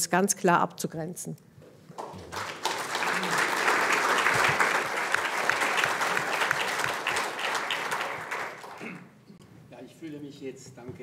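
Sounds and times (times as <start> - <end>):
audience applauding: 2.0 - 9.0.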